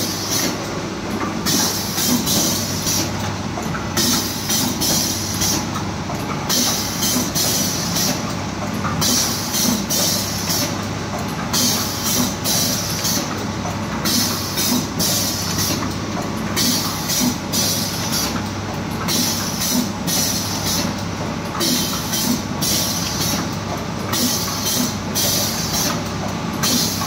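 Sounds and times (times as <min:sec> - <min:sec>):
machine hiss: 0:00.0 - 0:00.6, 0:01.4 - 0:03.1, 0:04.0 - 0:05.7, 0:06.5 - 0:08.2, 0:09.0 - 0:10.8, 0:11.5 - 0:13.3, 0:14.0 - 0:15.8, 0:16.6 - 0:18.4, 0:19.1 - 0:21.0, 0:21.6 - 0:23.5, 0:24.1 - 0:26.0, 0:26.6 - 0:27.0
packing machine humming: 0:00.0 - 0:27.0.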